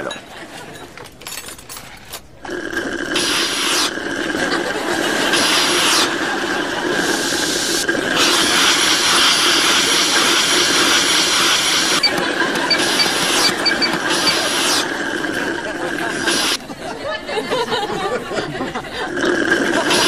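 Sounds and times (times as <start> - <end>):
coffee vending machine dispensing: 8.2 - 16.6.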